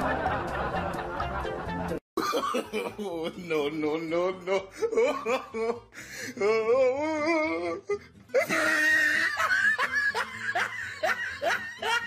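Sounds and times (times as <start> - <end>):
person laughing: 2.2 - 3.7, 4.3 - 7.8, 8.4 - 12.0.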